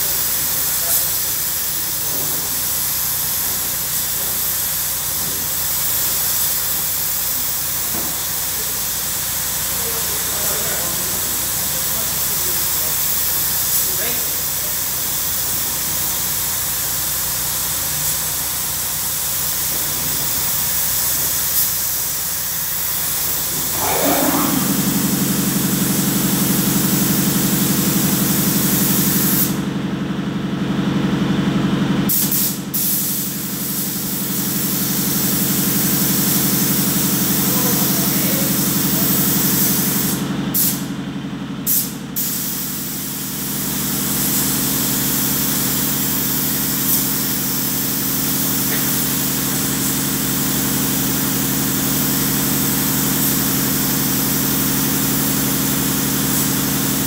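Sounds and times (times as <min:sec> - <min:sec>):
spray gun hissing: 0:00.0 - 0:29.6, 0:32.1 - 0:40.8, 0:41.7 - 0:57.0
low motor hum: 0:23.5 - 0:26.4.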